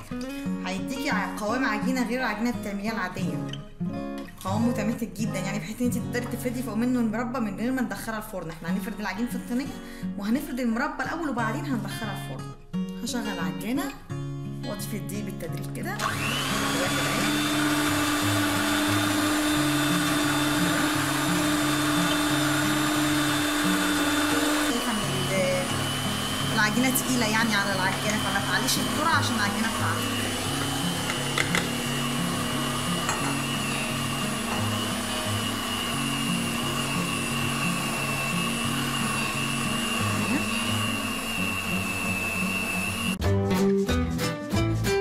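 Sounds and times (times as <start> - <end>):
stand mixer running in dough: 16.0 - 26.8, 27.9 - 43.1.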